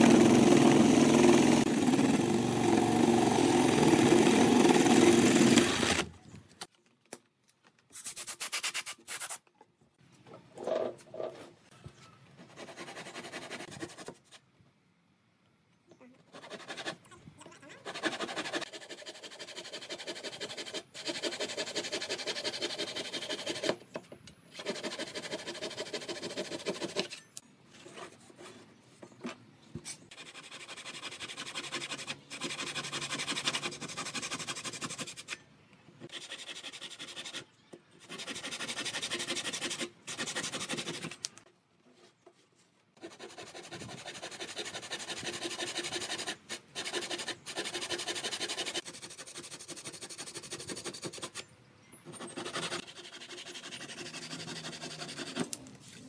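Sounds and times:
hand saw cutting wood: 0:00.0 - 0:06.1, 0:16.3 - 0:17.0, 0:17.8 - 0:23.8, 0:24.5 - 0:27.2, 0:30.1 - 0:35.4, 0:36.0 - 0:41.4, 0:43.0 - 0:51.4, 0:52.1 - 0:55.6.

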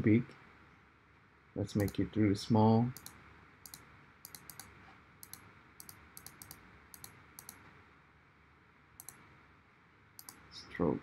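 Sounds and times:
computer mouse and key clicks: 0:01.8 - 0:02.0, 0:02.9 - 0:07.8, 0:09.0 - 0:09.3, 0:10.2 - 0:10.5.

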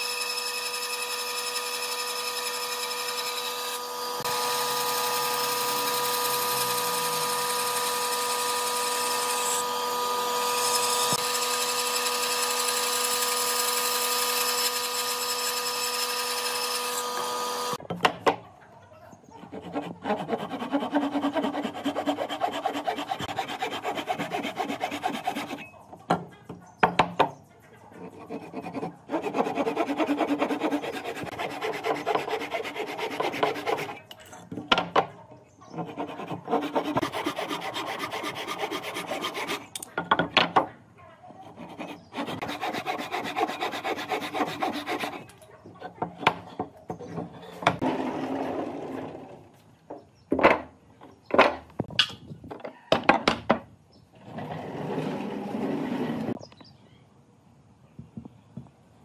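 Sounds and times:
hand tool rasping wood: 0:00.0 - 0:17.8, 0:19.4 - 0:25.6, 0:28.0 - 0:34.1, 0:35.8 - 0:39.9, 0:41.4 - 0:45.4.

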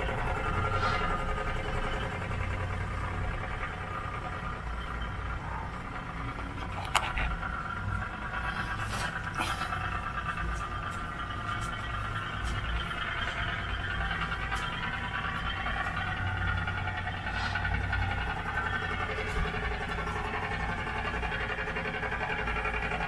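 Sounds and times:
toy boat steam engine running: 0:00.0 - 0:23.0.

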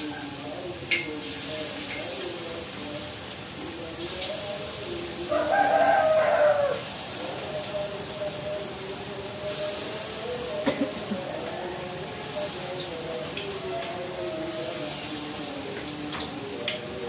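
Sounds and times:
rooster crowing: 0:05.3 - 0:07.6, 0:11.2 - 0:12.8.

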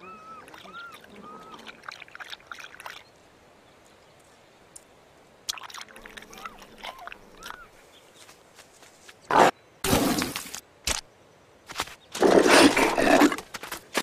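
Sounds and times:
cheetah cubs chirping: 0:00.0 - 0:03.0, 0:05.9 - 0:07.9.

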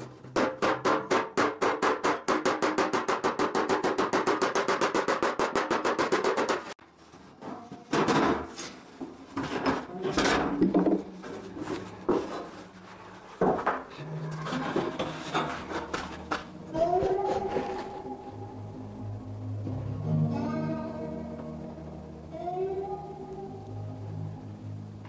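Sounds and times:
sheet metal clanking and scraping: 0:13.8 - 0:16.4.

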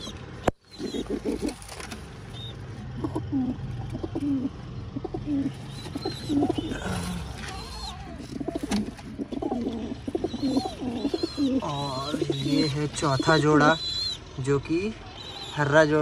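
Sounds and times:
pigeons cooing: 0:00.0 - 0:14.4.

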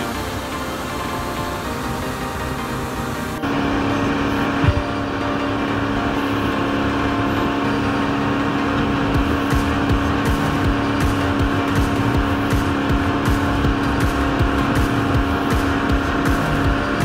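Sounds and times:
boat motor droning: 0:00.0 - 0:17.0
low thumps: 0:04.6 - 0:05.1.

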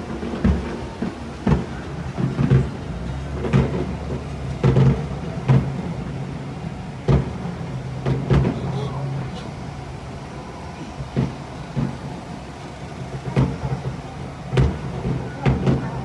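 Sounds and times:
irregular knocks and thumps: 0:00.1 - 0:06.3, 0:07.0 - 0:08.7, 0:11.1 - 0:12.2, 0:13.0 - 0:16.0.

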